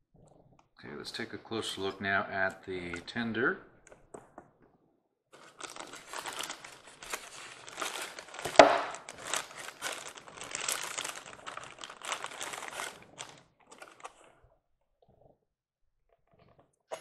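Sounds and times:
plastic bag crinkling: 0:05.4 - 0:14.4.

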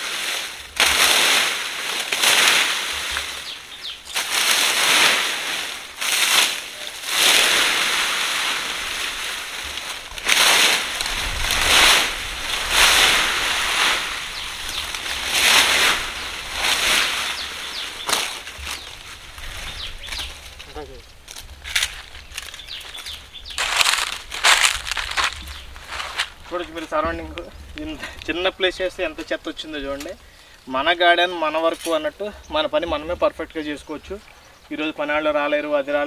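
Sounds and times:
rake dragged through dry leaves: 0:00.0 - 0:27.4.

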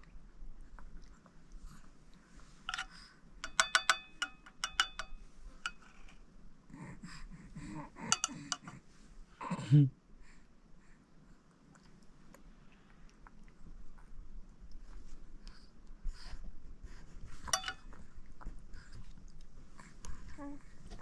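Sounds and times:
metal spoon scraping a plate: 0:02.6 - 0:06.2, 0:08.0 - 0:08.8, 0:17.4 - 0:17.9.

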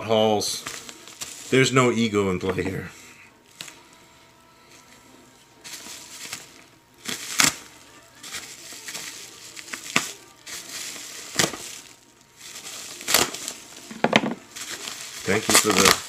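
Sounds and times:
bubble wrap crinkling: 0:00.5 - 0:01.8, 0:04.7 - 0:16.0
bubble wrap crackles: 0:00.6 - 0:01.7, 0:04.7 - 0:16.0.

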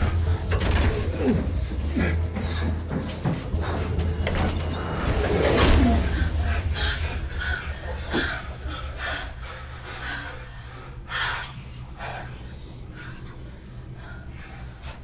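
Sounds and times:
people breathing hard and gasping: 0:00.0 - 0:15.0
steady low hum: 0:00.0 - 0:15.0.

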